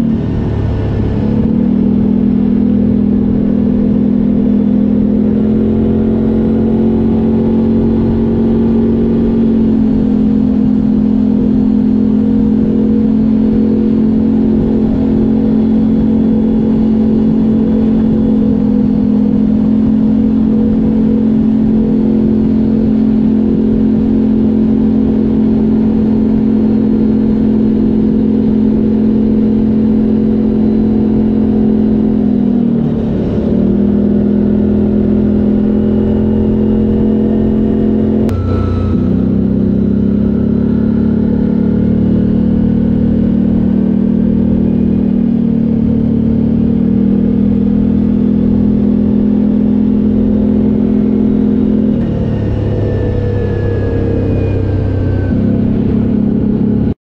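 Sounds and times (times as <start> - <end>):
atv engine running at steady revs: 0.0 - 57.0.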